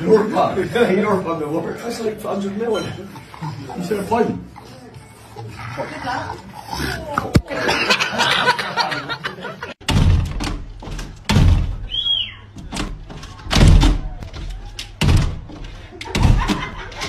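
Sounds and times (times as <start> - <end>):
glass sliding door banging: 9.8 - 11.9, 12.6 - 17.0.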